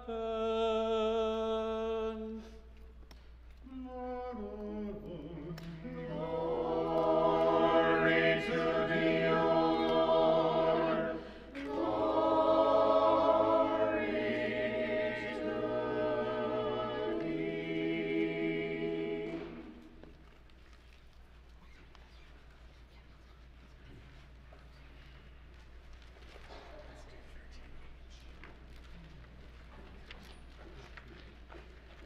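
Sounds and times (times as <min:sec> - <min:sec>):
church choir chanting: 0:04.2 - 0:20.0.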